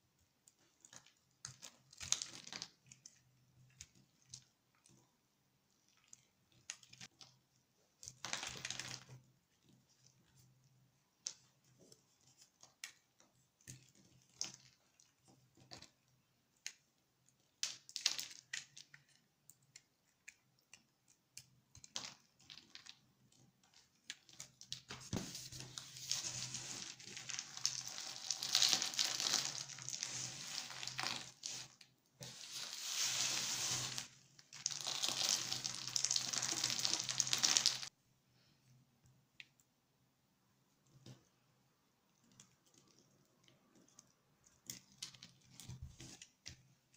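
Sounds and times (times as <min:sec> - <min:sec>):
soap cubes crackling rustle: 0:13.6 - 0:24.9, 0:25.8 - 0:38.0.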